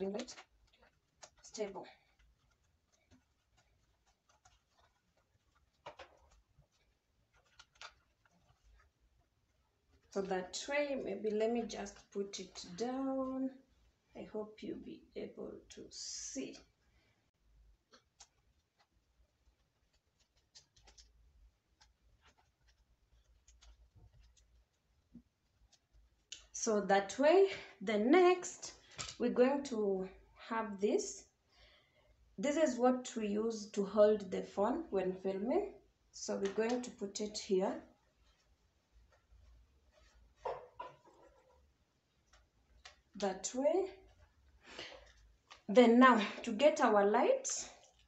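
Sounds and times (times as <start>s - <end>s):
faint handling clicks and knocks: 0.0s - 13.5s, 17.8s - 26.6s.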